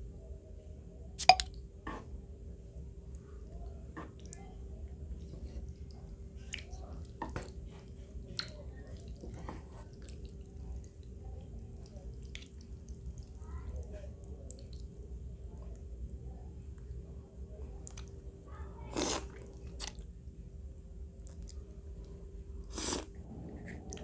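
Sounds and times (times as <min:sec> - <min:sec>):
chopsticks and spoon tapping: 0:01.2 - 0:01.5
broth dripping and slopping: 0:05.5 - 0:15.8
steady hum: 0:22.4 - 0:24.0.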